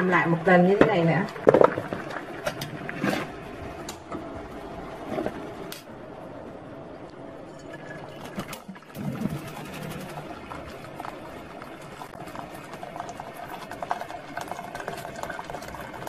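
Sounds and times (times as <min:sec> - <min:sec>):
water splashing and bubbling: 0:01.3 - 0:03.9, 0:08.1 - 0:16.0
water pouring from a kettle: 0:07.8 - 0:16.0.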